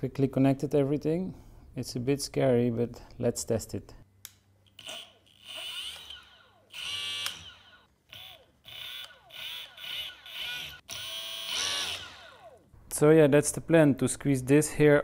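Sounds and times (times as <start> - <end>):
electric motor whine: 4.8 - 12.6.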